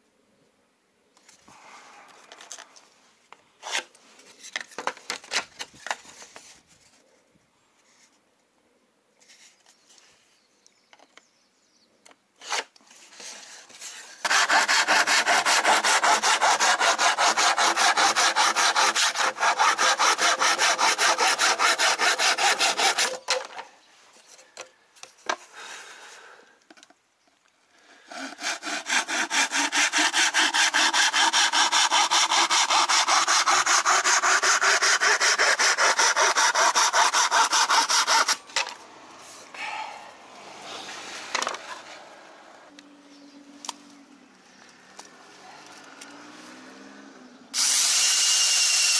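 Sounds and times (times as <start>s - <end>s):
hand saw cutting plywood: 12.4s - 23.5s, 28.1s - 38.6s, 47.6s - 48.9s.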